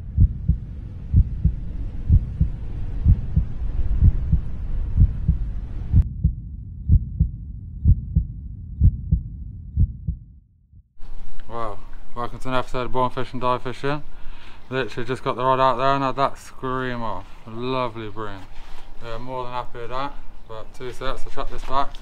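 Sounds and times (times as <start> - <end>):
heartbeat low double thumps: 0.0 - 11.0
soft hiss: 11.0 - 20.6.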